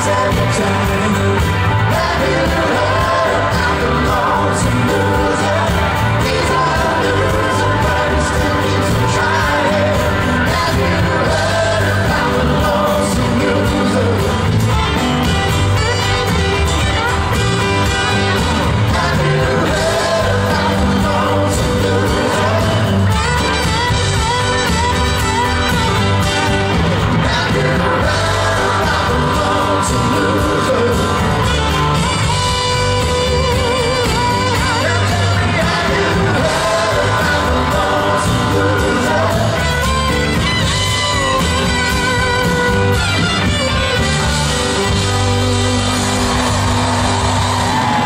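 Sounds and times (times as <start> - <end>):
person singing lead vocals: 0.0 - 15.0, 17.8 - 23.6, 26.9 - 40.5
live soft rock band: 0.0 - 48.0.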